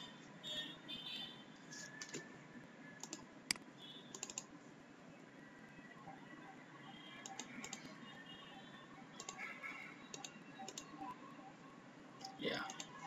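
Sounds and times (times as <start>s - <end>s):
computer keys clicking: 1.8s - 2.2s, 3.0s - 4.5s, 7.2s - 8.0s, 9.2s - 9.5s, 10.1s - 11.1s.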